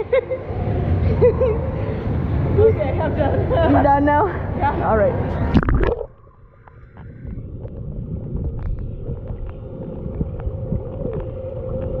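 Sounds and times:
steady hum: 0.0s - 12.0s
underwater water rumble: 5.4s - 12.0s.

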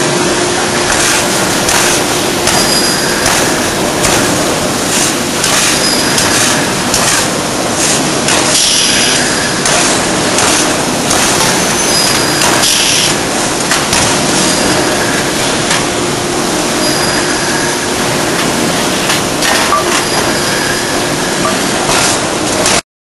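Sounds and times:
forge shop noise: 0.0s - 22.8s
hissing bursts: 0.8s - 15.7s.

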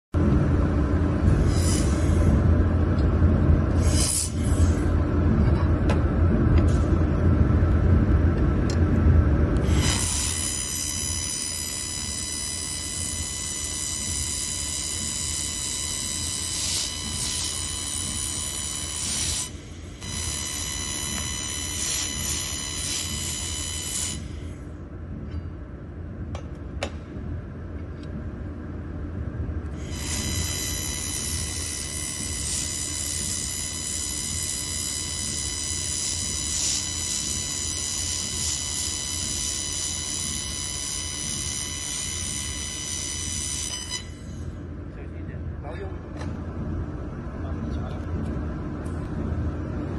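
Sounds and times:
laser welder hiss and whine: 0.8s - 3.0s, 3.6s - 5.2s, 9.5s - 24.8s, 29.7s - 44.7s.

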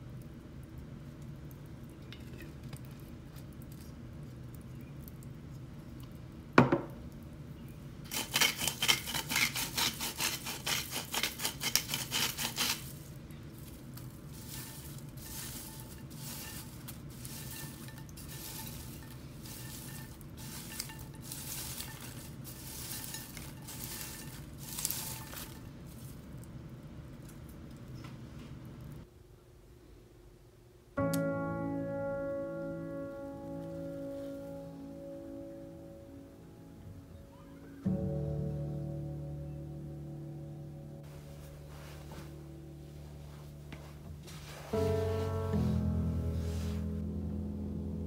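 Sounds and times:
popcorn rustling in a bowl: 0.0s - 6.6s, 7.6s - 29.1s, 41.0s - 47.1s.

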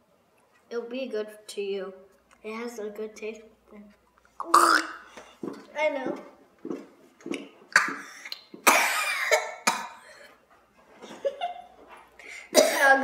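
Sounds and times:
girl coughing: 7.8s - 10.3s, 12.4s - 13.0s.

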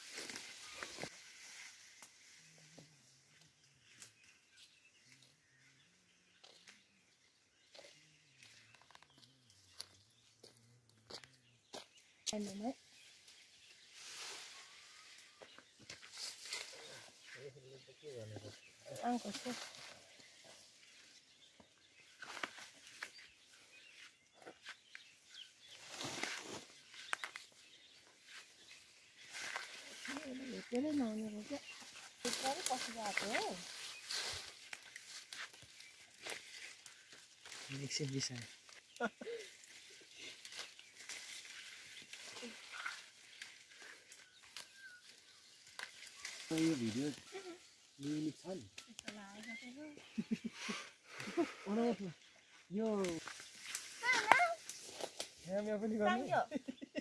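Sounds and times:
rustling clicks in undergrowth: 0.0s - 5.7s, 6.4s - 17.4s, 18.2s - 50.5s, 52.3s - 55.7s
faint footsteps on dirt path: 2.6s - 12.8s, 19.4s - 37.8s.

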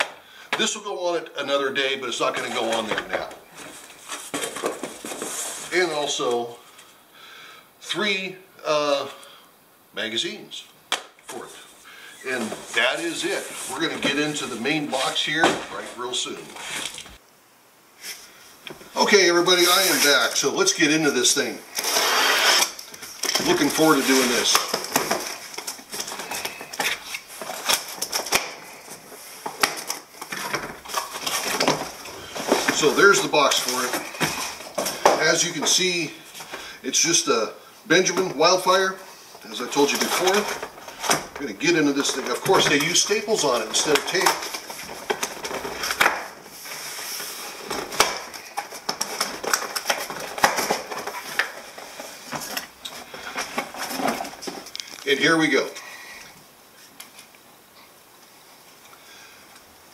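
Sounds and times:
cardboard scraping and rustling: 2.2s - 6.0s, 12.2s - 17.2s, 18.8s - 36.6s, 39.5s - 55.3s.

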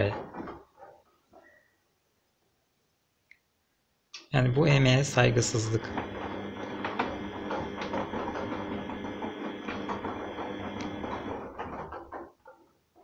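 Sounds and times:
washing machine motor hum: 4.9s - 12.2s.

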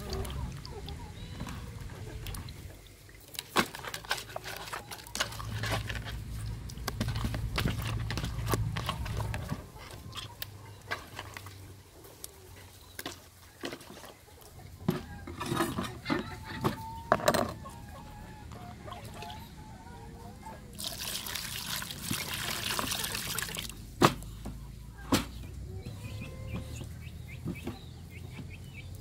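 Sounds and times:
hens clucking: 0.0s - 3.1s, 3.7s - 21.0s, 21.9s - 29.0s
water sloshing in plastic basin: 0.0s - 11.7s, 20.7s - 24.2s.

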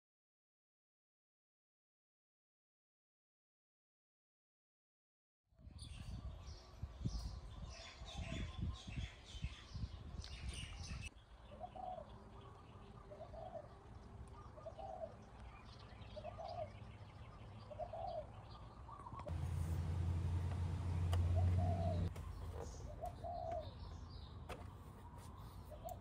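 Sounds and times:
small birds chirping: 5.7s - 26.0s
dove cooing: 11.6s - 12.1s, 13.0s - 13.8s, 14.4s - 15.3s, 16.1s - 16.8s, 17.7s - 18.4s, 19.8s - 23.9s
low steady hum: 19.3s - 23.2s.

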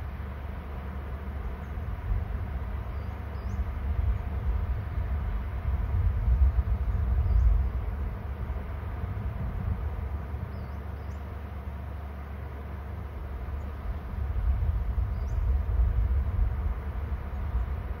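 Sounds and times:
wind buffeting microphone: 1.8s - 10.8s, 13.2s - 18.0s.

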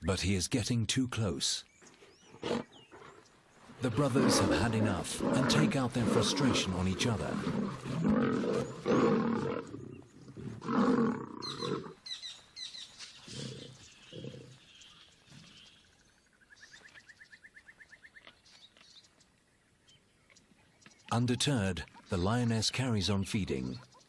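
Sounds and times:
lions snarling and roaring: 2.0s - 12.0s, 13.2s - 14.6s.

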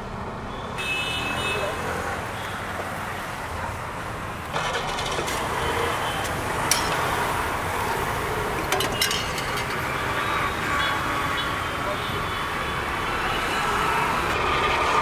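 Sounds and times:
roadside traffic: 0.0s - 15.0s
ladle clinking against pots: 8.6s - 9.9s.

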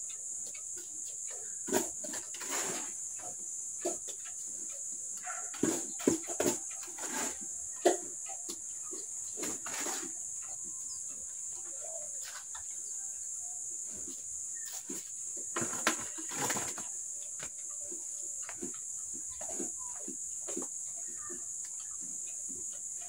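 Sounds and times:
chickens clucking: 0.0s - 23.0s
mortar scraping in bucket: 1.7s - 3.0s, 5.6s - 8.0s, 9.4s - 10.2s.

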